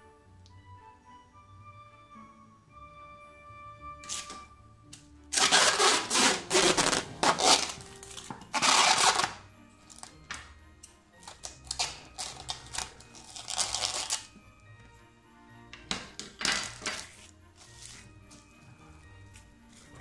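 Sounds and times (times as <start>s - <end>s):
cling wrap crackling: 5.3s - 10.2s, 11.2s - 14.4s.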